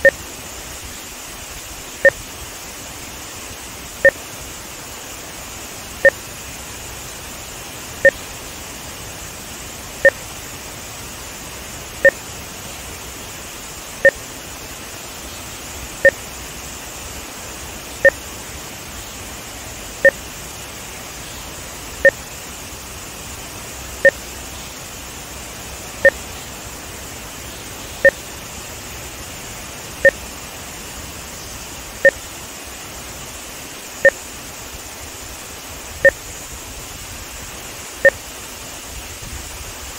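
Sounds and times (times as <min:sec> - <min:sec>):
two-tone electronic beeps: 0:00.0 - 0:00.2, 0:22.0 - 0:22.2, 0:24.0 - 0:24.2, 0:26.0 - 0:26.2, 0:28.0 - 0:28.2, 0:32.0 - 0:32.2.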